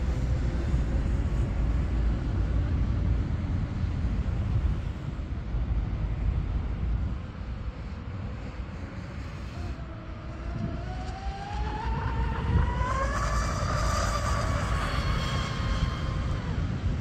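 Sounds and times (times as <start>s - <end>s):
gusty wind on microphone: 0.0s - 17.0s
electric motors whining: 9.1s - 17.0s.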